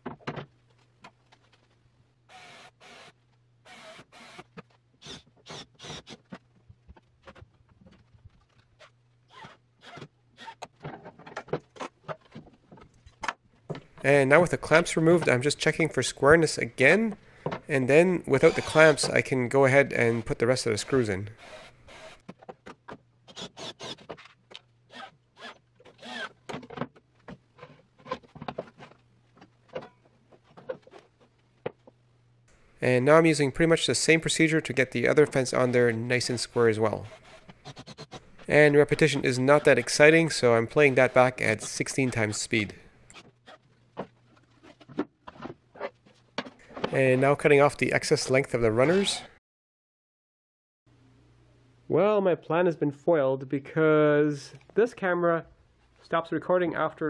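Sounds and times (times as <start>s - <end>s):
cordless drill driving screw: 2.3s - 6.2s, 21.4s - 22.2s, 23.3s - 24.1s, 24.9s - 26.4s
clicks rattles and scraping: 6.2s - 14.1s, 25.8s - 32.0s.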